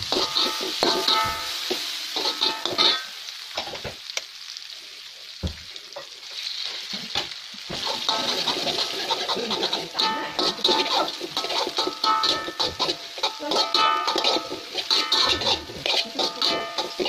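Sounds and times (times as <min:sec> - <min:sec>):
spatula scraping steel wok: 0:00.0 - 0:03.1, 0:07.7 - 0:17.0
frying sizzle: 0:00.0 - 0:17.0.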